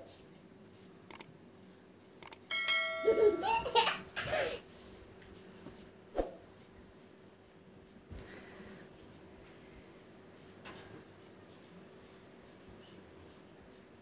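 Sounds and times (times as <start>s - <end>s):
ringing bell-like chime: 2.5s - 3.6s
toddler laughing and giggling: 3.0s - 4.7s.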